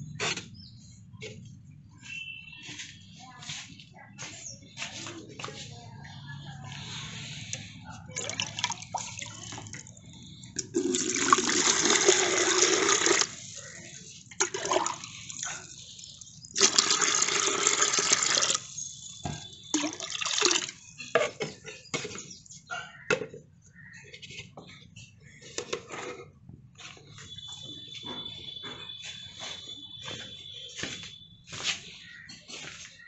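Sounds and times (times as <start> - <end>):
water splashing and sloshing: 8.0 - 21.0
water poured into a bucket: 8.1 - 10.0, 10.6 - 13.4, 14.3 - 18.8, 19.7 - 20.8.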